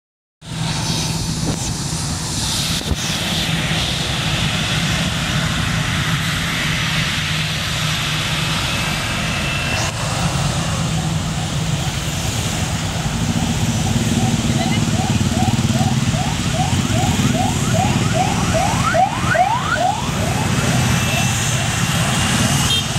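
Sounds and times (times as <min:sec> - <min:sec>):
jet engines roaring: 0:00.4 - 0:22.9
truck engines idling and passing: 0:00.4 - 0:22.9.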